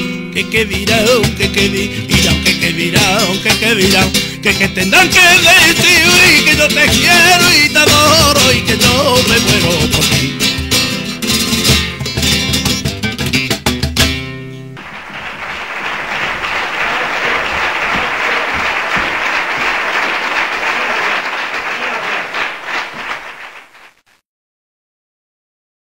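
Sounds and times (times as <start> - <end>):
flamenco guitar strumming: 0.0 - 19.7
audience applause: 14.8 - 24.0.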